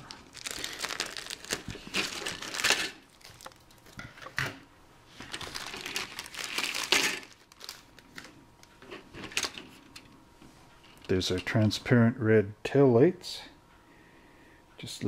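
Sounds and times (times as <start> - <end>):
plastic bag crinkling: 0.0 - 4.0, 5.2 - 8.4.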